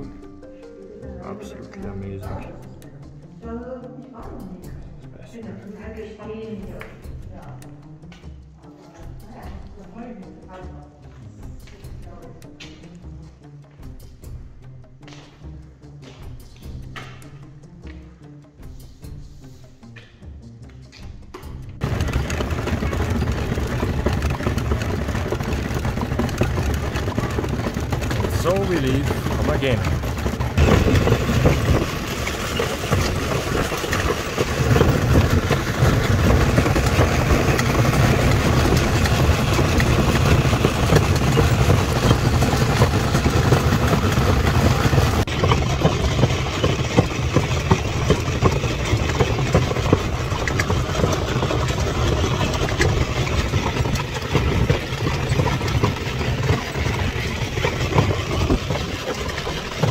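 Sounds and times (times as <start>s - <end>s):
wooden cart wheels rumbling: 21.8s - 59.9s.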